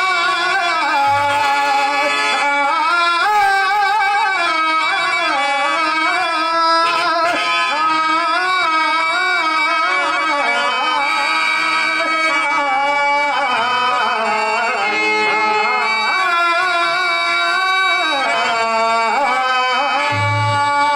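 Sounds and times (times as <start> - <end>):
harmonium: 0.0 - 20.9
man singing: 15.8 - 20.9.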